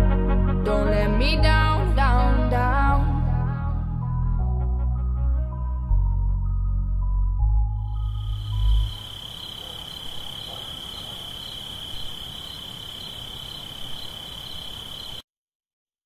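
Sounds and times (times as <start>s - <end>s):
insect trilling: 7.9s - 15.2s.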